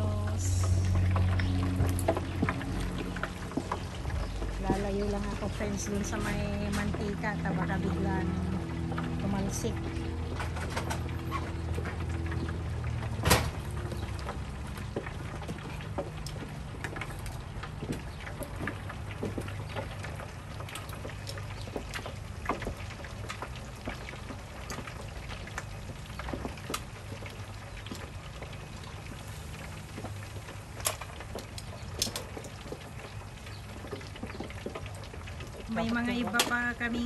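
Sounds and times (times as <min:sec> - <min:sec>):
low hum: 0:00.0 - 0:19.2
hot oil crackling in a fryer: 0:00.0 - 0:37.0.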